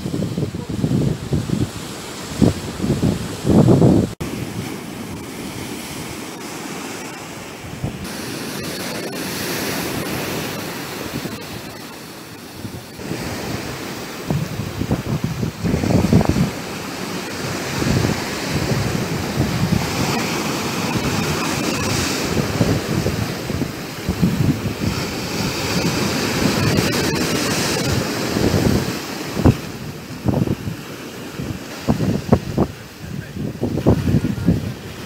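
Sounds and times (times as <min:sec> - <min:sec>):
wind buffeting microphone: 0:00.0 - 0:06.5, 0:07.6 - 0:08.2, 0:09.8 - 0:35.0
surf breaking on stony beach: 0:00.0 - 0:35.0.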